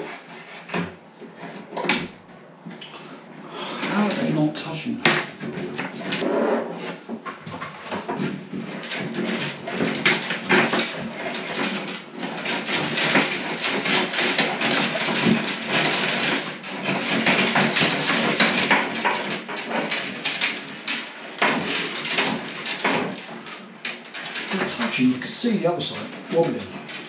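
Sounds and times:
rods scraping and rustling: 0.0s - 27.0s
small knocks and clicks: 5.0s - 25.2s.

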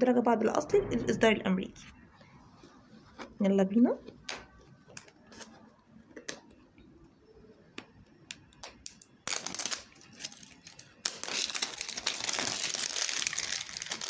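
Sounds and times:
plastic wrap crinkling: 8.6s - 14.0s.

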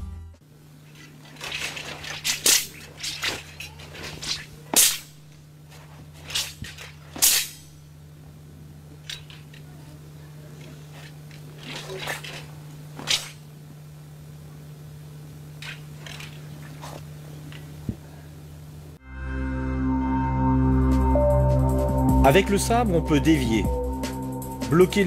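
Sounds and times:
low hum: 0.0s - 25.0s
clothing snapping: 0.8s - 7.8s, 10.5s - 13.5s, 15.6s - 18.0s.

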